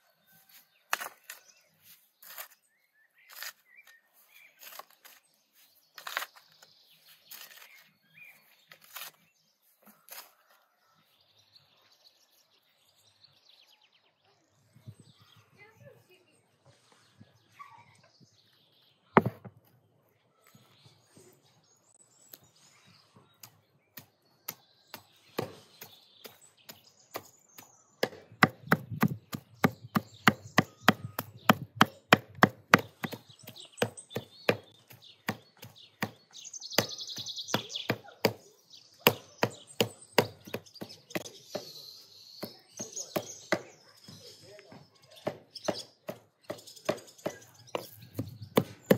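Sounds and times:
faint birds chirping: 0.0 - 48.9
cleaver chopping meat on wood: 23.9 - 41.8, 42.4 - 43.8, 45.2 - 48.9.

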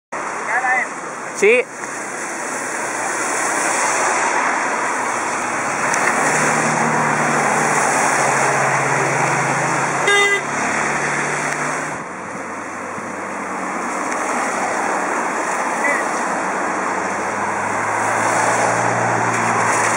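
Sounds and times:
car engine humming: 0.2 - 19.9
tyres hissing on wet road: 0.2 - 19.9
car horn toot: 10.0 - 10.5.

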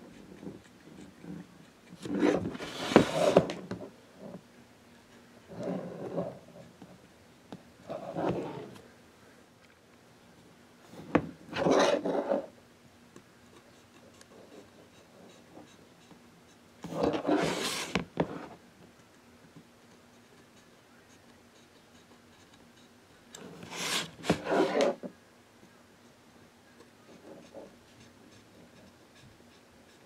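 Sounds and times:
faint steady hum: 0.0 - 30.0
wood rubbing and scraping: 2.1 - 4.4, 16.9 - 18.6, 23.5 - 25.1.

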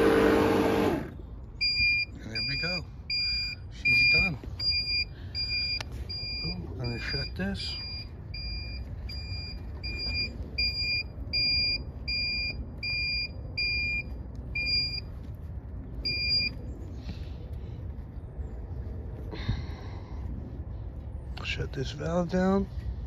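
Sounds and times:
electronic alarm beeping: 1.6 - 15.1, 16.0 - 16.6.

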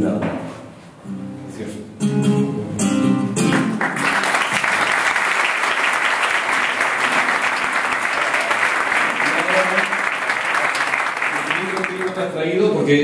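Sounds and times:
guitar music: 1.0 - 4.0
audience applauding: 3.4 - 12.5.

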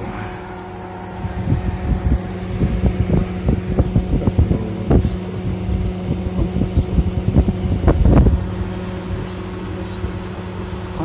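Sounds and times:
blower fan motor humming: 0.0 - 11.0.

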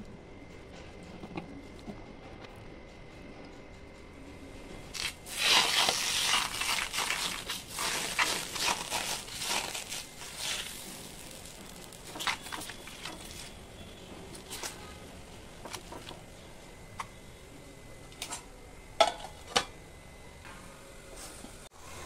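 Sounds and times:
batter sizzling on hot pan: 4.9 - 16.4
bowl scraping metal pan: 5.0 - 13.6.

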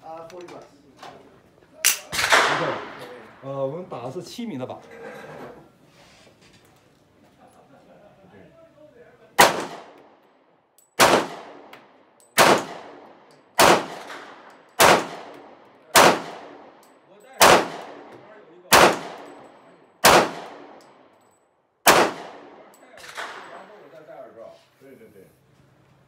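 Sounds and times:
pistol shots with echo: 1.9 - 3.1, 9.4 - 10.0, 11.0 - 21.0, 21.8 - 23.6.

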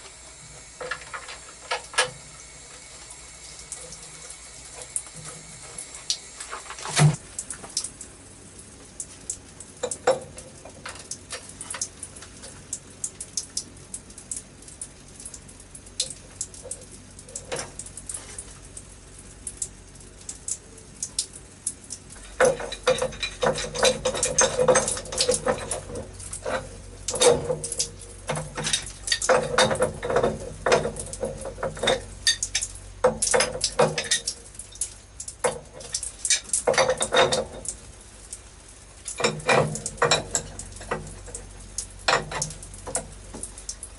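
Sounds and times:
spanner clinking and scraping on metal: 22.2 - 37.8, 39.1 - 41.4, 42.0 - 43.2.

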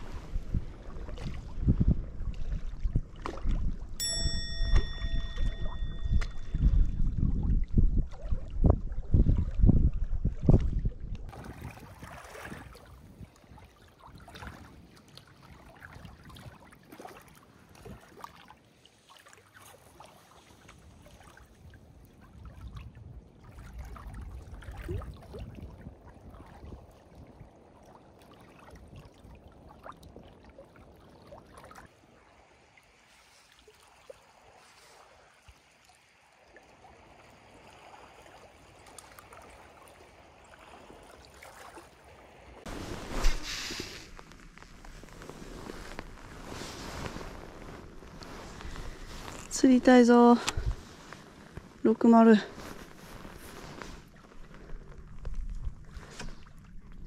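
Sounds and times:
lake water lapping on rocks: 0.0 - 4.0, 6.6 - 32.2, 33.0 - 57.0.

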